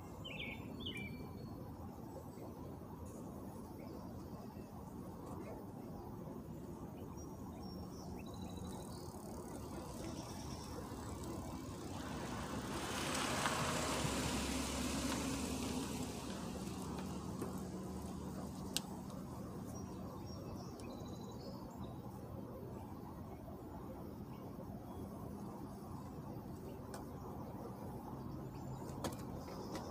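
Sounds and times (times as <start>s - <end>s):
vehicle driving past: 9.3s - 20.1s.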